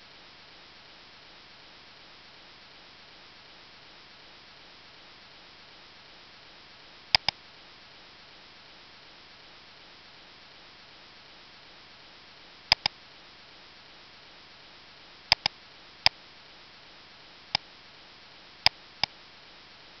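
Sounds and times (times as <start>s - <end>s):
microphone hiss: 0.0s - 20.0s
computer mouse clicking: 7.2s - 7.4s, 12.7s - 12.9s, 15.3s - 15.5s.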